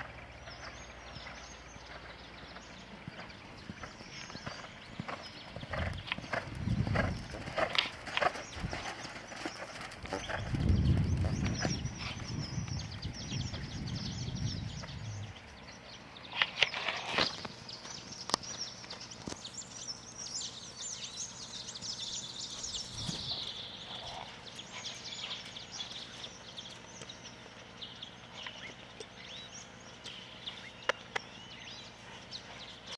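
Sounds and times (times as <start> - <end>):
hoofbeats on sand: 0.0 - 15.3
birds chirping: 0.0 - 32.9.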